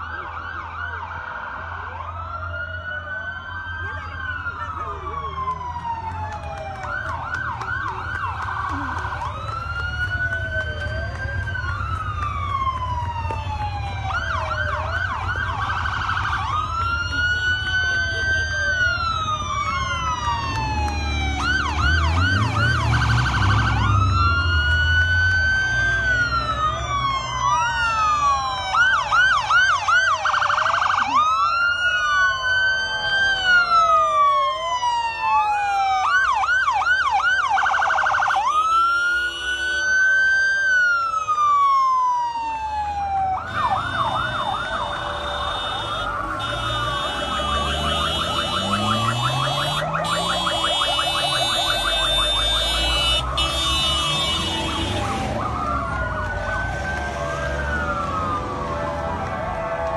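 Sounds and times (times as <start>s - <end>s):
low rumble of engines: 0.0s - 59.9s
vehicle sirens wailing and yelping: 0.0s - 59.9s.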